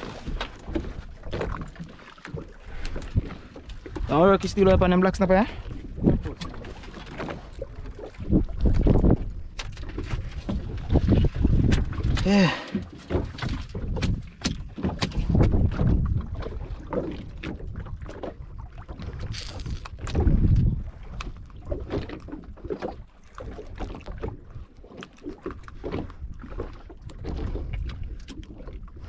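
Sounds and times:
water slapping against boat hull: 0.0 - 29.0
wind gusts on microphone: 8.2 - 12.3, 15.0 - 22.1.

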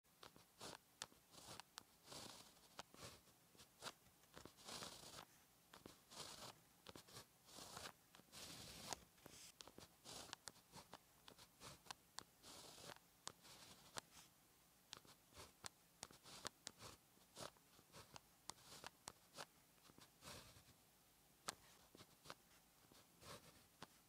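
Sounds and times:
scratchy pen strokes on paper: 0.2 - 14.3, 14.9 - 20.8, 21.4 - 24.0
pen tip tapping paper: 9.6 - 14.0.

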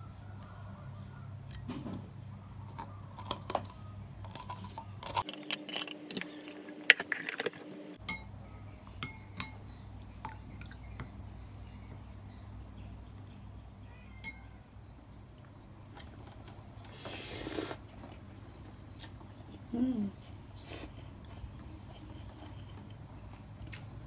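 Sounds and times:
low steady hum: 0.0 - 16.9
tableware clinking: 2.7 - 8.4.

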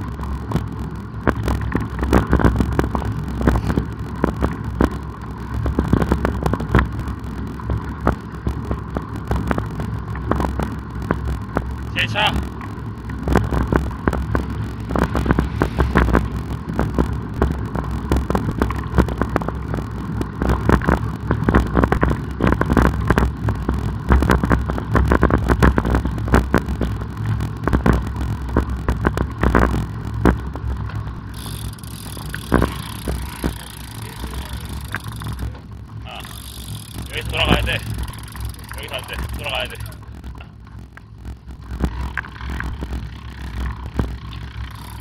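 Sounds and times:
wind buffeting microphone: 0.0 - 36.1.

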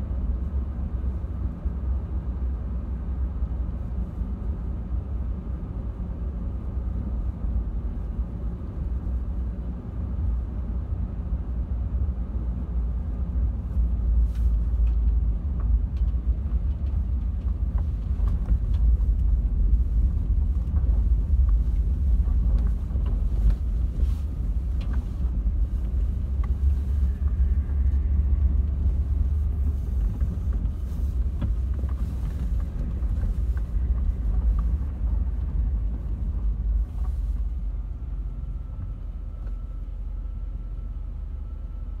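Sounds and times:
car cabin low rumble: 0.0 - 42.0
stones clicking under tyres: 14.7 - 23.8.

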